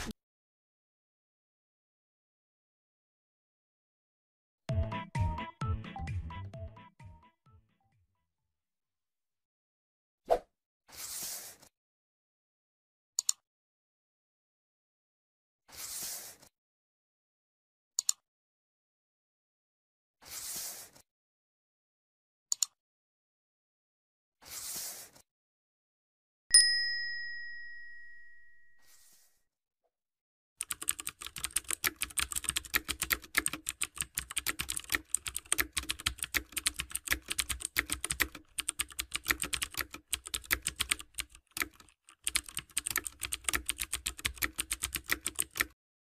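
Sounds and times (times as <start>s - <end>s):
bright bell chime: 26.5s - 29.0s
keyboard typing clicks: 30.6s - 45.8s.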